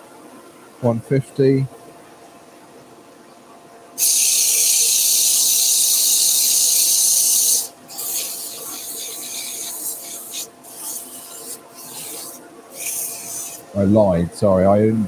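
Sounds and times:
sandpaper sanding spinning wood: 4.0 - 13.7.

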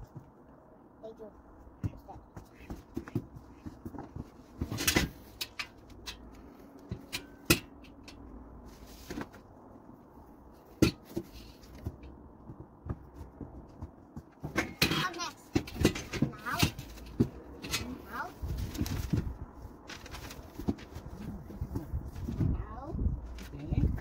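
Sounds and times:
grill parts knocking and clicking: 1.7 - 8.6, 10.6 - 22.6
scraping rustle: 8.6 - 9.6, 15.1 - 24.0.

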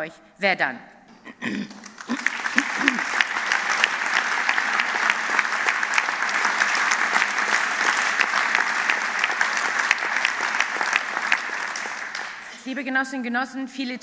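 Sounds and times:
audience applause: 1.4 - 12.6.

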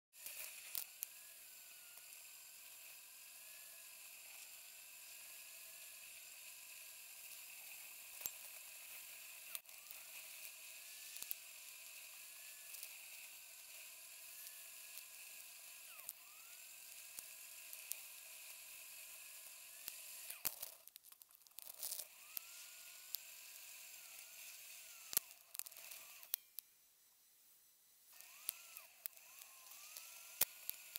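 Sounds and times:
camera hiss and whine: 28.0 - 30.9.

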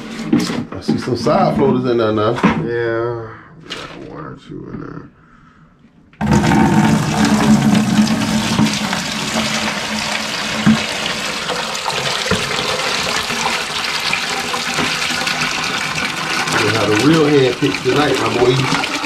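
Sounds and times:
water splashing into plastic bucket: 6.2 - 19.0.

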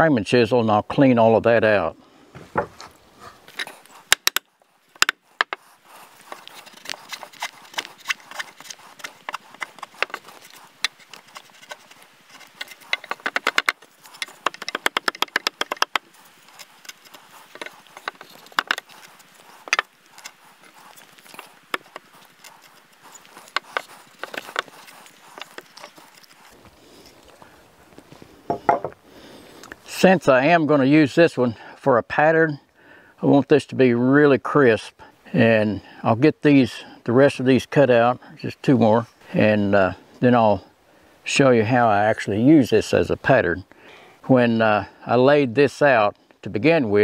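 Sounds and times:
chisel tapping wood: 4.1 - 4.4, 5.0 - 5.6, 12.6 - 16.1, 17.0 - 18.8.

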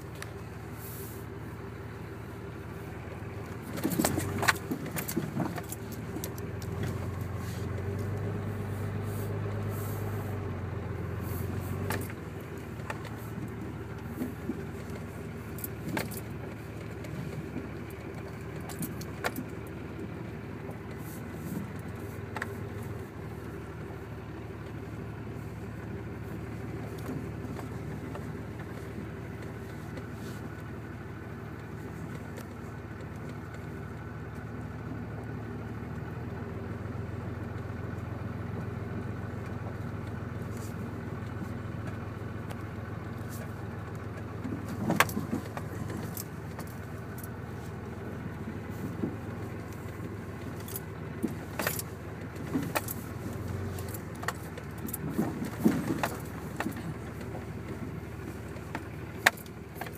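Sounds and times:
car engine and road noise: 0.0 - 59.9
knocks and rattles from bumps: 3.5 - 8.4, 44.1 - 47.4, 48.6 - 59.9.

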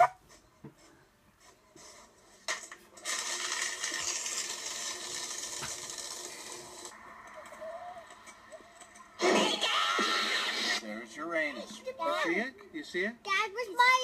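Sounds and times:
paper shredder shredding paper: 3.0 - 6.4.

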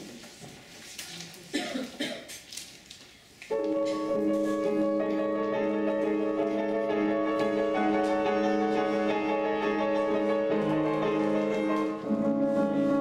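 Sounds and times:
faint shuffles: 2.7 - 13.0
zither and piano duo: 3.5 - 13.0.

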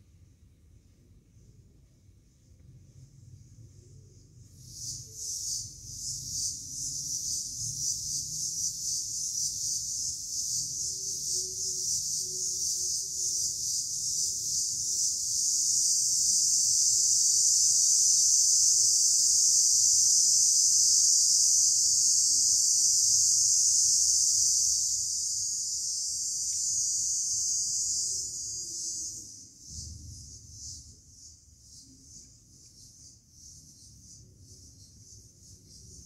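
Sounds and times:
insects droning high-pitched: 0.0 - 36.0.

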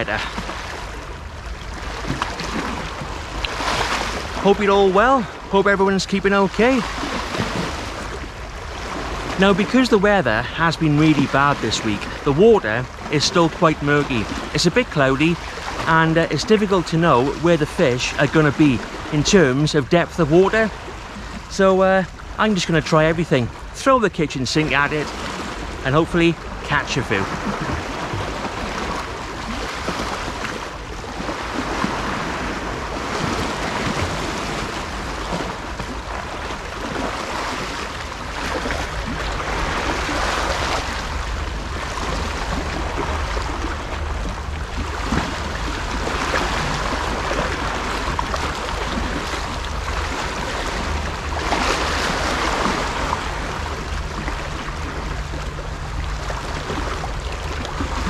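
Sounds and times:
waves lapping against rocks: 0.0 - 58.0.

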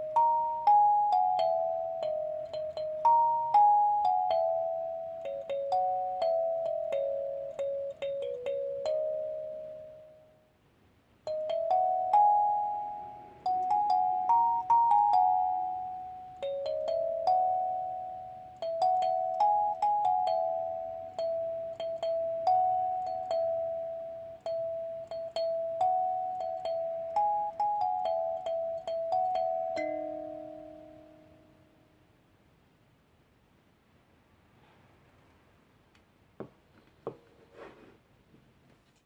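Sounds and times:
kalimba melody: 0.0 - 10.3, 11.3 - 31.4.

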